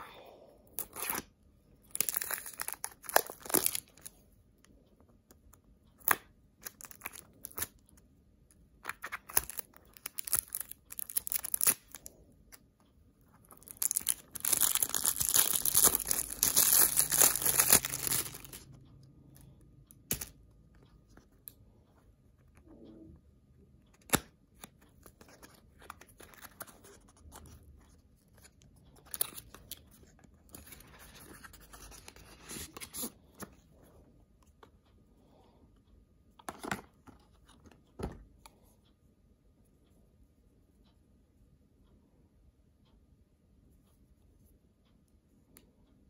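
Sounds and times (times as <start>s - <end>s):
plastic wrapping crinkling: 1.9s - 4.1s, 9.1s - 12.0s, 13.5s - 18.7s.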